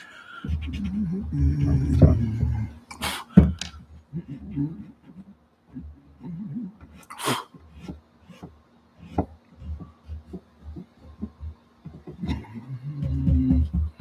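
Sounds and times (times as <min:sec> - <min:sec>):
pastel scratching on paper: 0:00.4 - 0:01.8.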